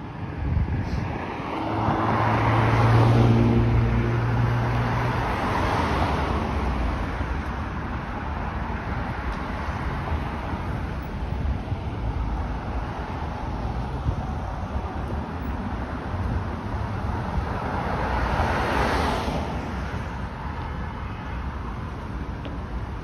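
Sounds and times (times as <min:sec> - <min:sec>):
wind rumble on microphone: 0:00.0 - 0:05.5, 0:08.1 - 0:18.5
road traffic passing: 0:00.0 - 0:23.0.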